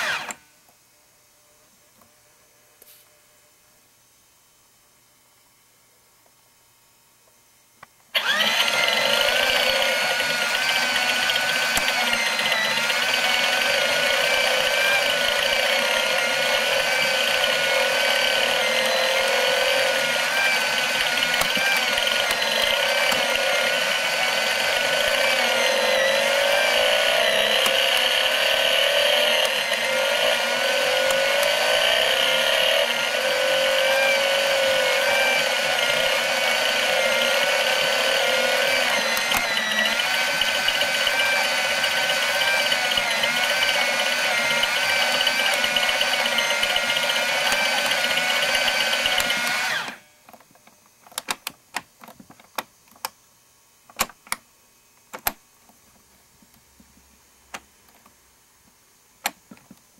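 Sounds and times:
small electric motor whirring: 0.0 - 0.4, 8.2 - 50.1.

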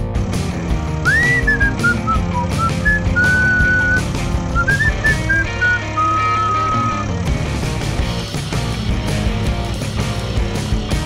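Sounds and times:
whistled melody over beat: 1.0 - 7.2.

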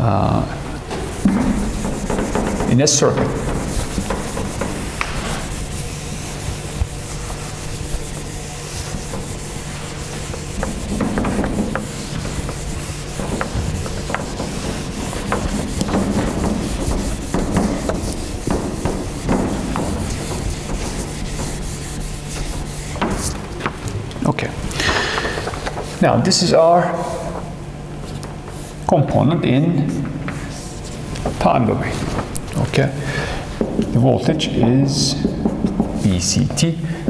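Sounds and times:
eraser rubbing on whiteboard: 0.9 - 23.7.

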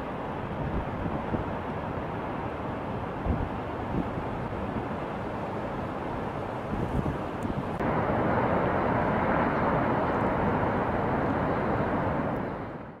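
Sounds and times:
waterfall rushing: 7.8 - 12.7.

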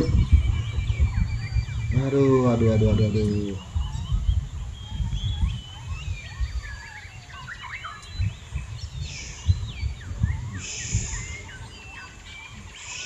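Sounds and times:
birds chirping and whistling: 0.0 - 13.0
high hiss: 10.6 - 11.8, 12.6 - 13.0.

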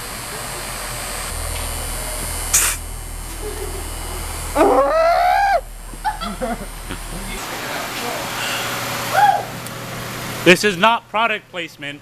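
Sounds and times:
car engine idling: 0.0 - 10.5
low hum: 0.0 - 10.5
exhaust hissing: 0.0 - 11.2
rising high-pitched sound: 0.9 - 9.6.

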